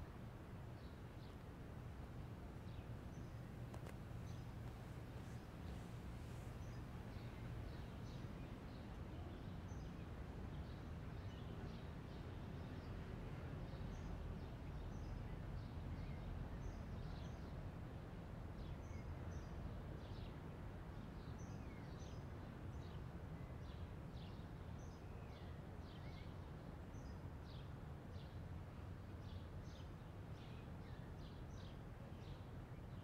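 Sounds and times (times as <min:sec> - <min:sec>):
low background rumble: 0:00.0 - 0:13.4.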